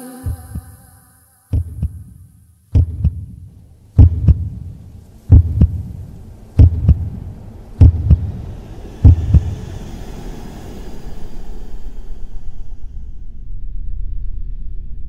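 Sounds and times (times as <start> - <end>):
heartbeat thumps: 0.2 - 0.9, 1.5 - 9.7.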